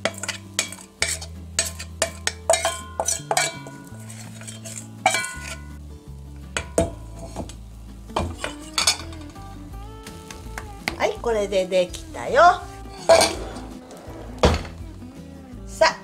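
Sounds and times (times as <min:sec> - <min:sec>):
metal ladle clinking on bowl: 0:00.0 - 0:05.8, 0:06.6 - 0:07.0, 0:08.2 - 0:09.4, 0:13.0 - 0:13.4
low background music: 0:00.0 - 0:16.0.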